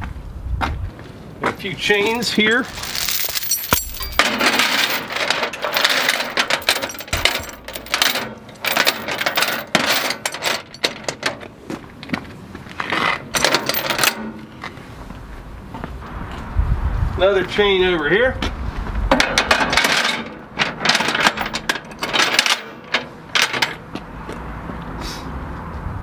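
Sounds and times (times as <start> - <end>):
steel chain clinking and rattling: 2.6 - 11.5, 13.0 - 14.6, 19.2 - 23.8.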